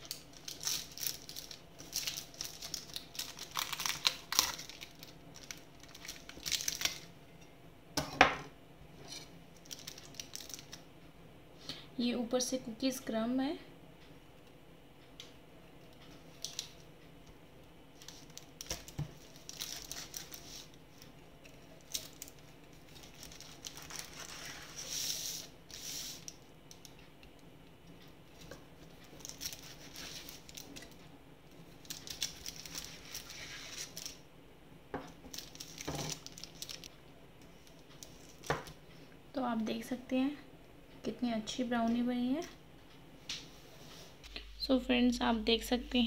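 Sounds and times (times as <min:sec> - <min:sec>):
aluminium foil crinkling: 0:00.0 - 0:07.1, 0:09.1 - 0:10.9, 0:16.2 - 0:16.8, 0:18.0 - 0:27.0, 0:28.3 - 0:34.2, 0:35.2 - 0:38.8.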